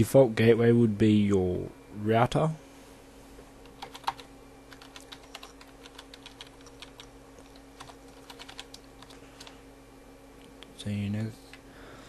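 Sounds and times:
steady low hum: 0:00.0 - 0:12.0
keyboard typing: 0:03.7 - 0:09.6.

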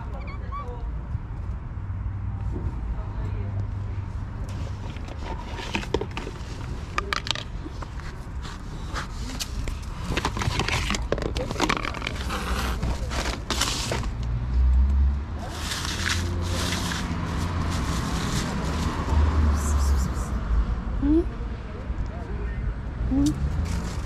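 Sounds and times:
plastic plate scraping on bricks: 0:04.5 - 0:08.2, 0:09.0 - 0:14.2, 0:15.4 - 0:18.8
plastic bags rustling: 0:04.6 - 0:14.2, 0:15.4 - 0:19.2.

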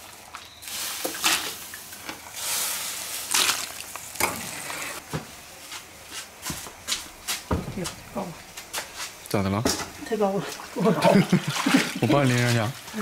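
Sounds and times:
pot of water bubbling: 0:00.0 - 0:05.0
water splashing and draining: 0:03.1 - 0:04.2, 0:10.4 - 0:12.8.

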